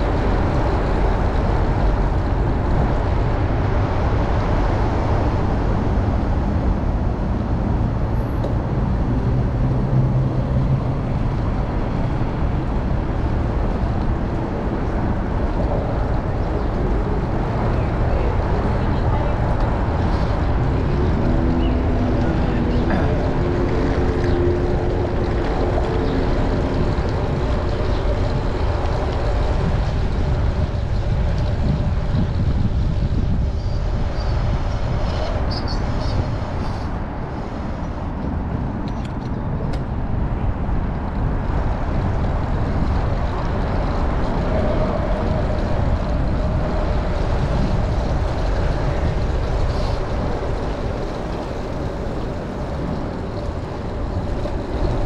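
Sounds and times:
city traffic: 0.0s - 55.0s
vehicle engine drone: 0.0s - 55.0s
wind rushing over microphone: 0.0s - 55.0s.

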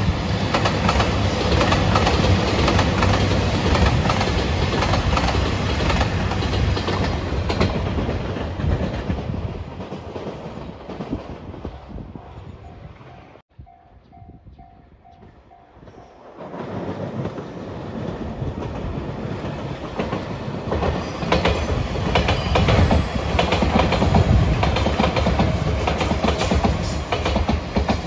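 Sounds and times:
train passing: 0.0s - 28.0s
train wheels clattering: 15.1s - 28.0s
level crossing warning bell: 21.7s - 23.7s.

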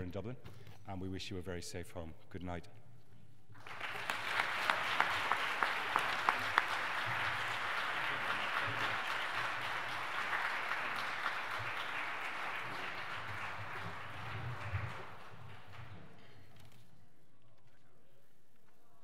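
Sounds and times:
audience applauding: 3.6s - 16.3s.

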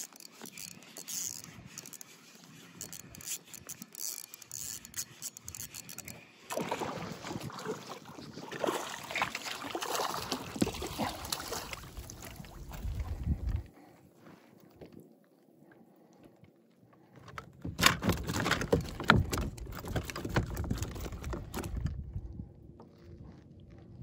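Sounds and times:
fishing reel winding and clicking: 0.0s - 6.5s
fish splashing in water: 6.5s - 12.7s.

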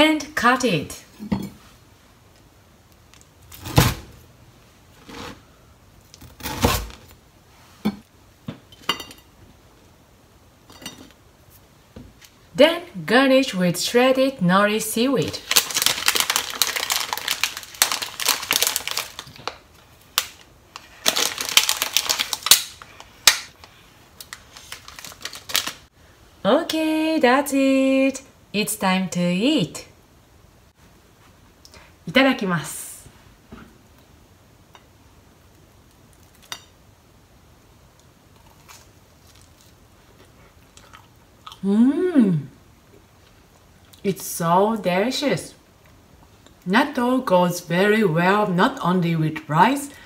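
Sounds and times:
plastic bag crinkling: 15.3s - 25.9s
toast crunch: 15.4s - 25.8s, 38.0s - 41.6s
quiet chewing: 38.0s - 41.6s.

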